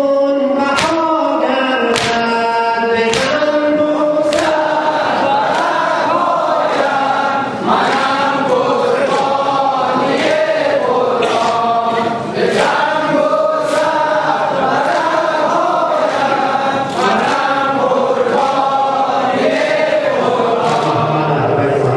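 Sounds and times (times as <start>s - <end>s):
men chanting in unison: 0.0s - 21.9s
hands beating chests: 1.9s - 2.3s, 3.1s - 3.6s.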